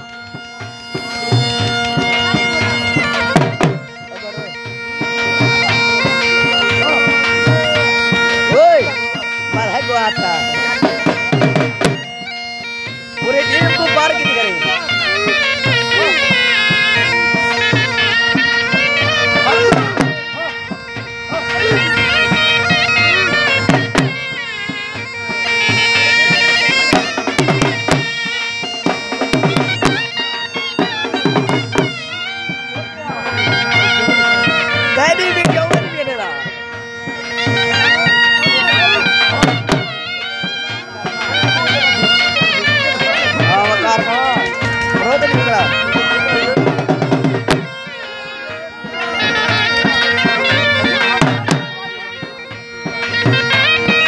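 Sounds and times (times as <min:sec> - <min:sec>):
drum beats: 0:00.0 - 0:54.0
reed pipes droning melody: 0:00.0 - 0:54.0.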